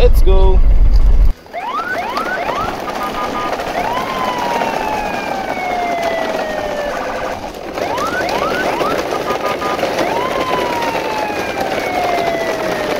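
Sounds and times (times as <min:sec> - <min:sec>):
electronic siren tone: 0:00.6 - 0:12.9.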